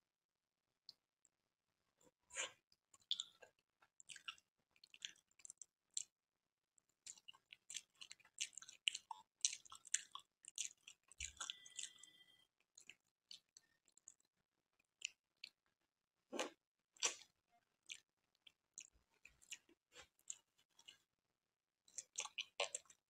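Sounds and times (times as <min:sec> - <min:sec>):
wet chewing mouth smacks: 0:07.1 - 0:12.1.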